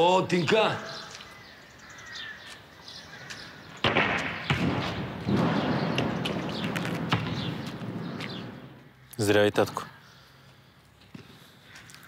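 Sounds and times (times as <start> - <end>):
basketball thump: 3.8 - 7.8.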